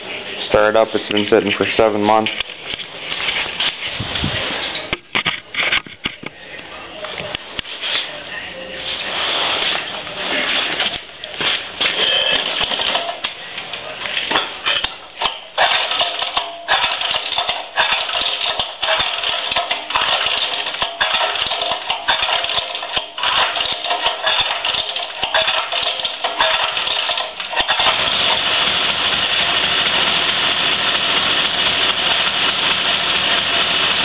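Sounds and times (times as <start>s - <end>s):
tiller engine running unevenly: 15.2s - 34.0s.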